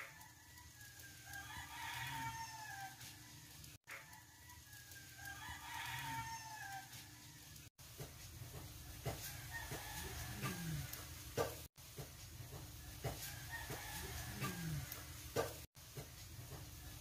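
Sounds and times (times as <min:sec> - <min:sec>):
chickens clucking: 0:14.3 - 0:15.5.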